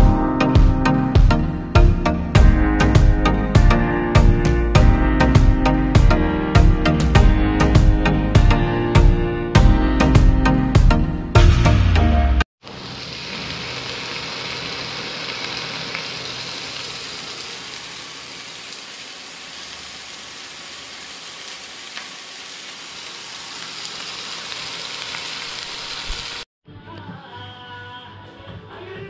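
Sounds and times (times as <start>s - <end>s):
fish frying in oil: 12.6s - 26.5s.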